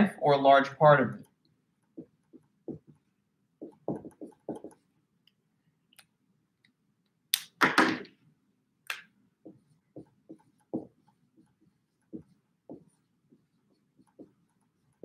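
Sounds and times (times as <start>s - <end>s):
marker writing on whiteboard: 1.1s - 5.0s, 9.4s - 15.0s.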